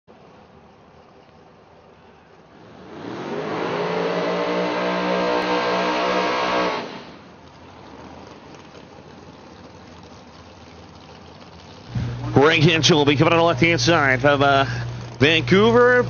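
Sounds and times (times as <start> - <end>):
car engine revving: 2.5 - 7.3.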